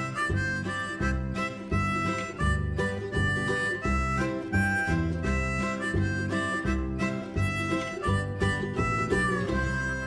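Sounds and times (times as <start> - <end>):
instrumental music with pulsing bass: 0.0 - 10.0.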